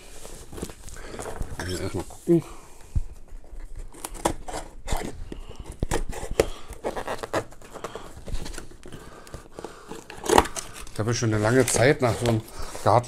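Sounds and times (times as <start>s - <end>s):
cardboard packaging being handled: 3.2s - 13.0s.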